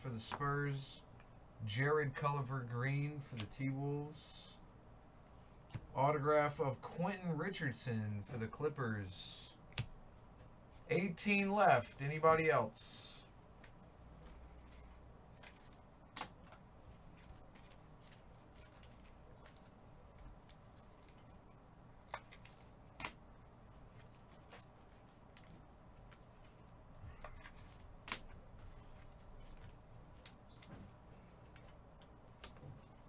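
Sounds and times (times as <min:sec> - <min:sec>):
faint room noise: 0:00.0 - 0:33.0
cards clicking and snapping: 0:15.4 - 0:16.6, 0:22.0 - 0:23.2, 0:25.3 - 0:33.0.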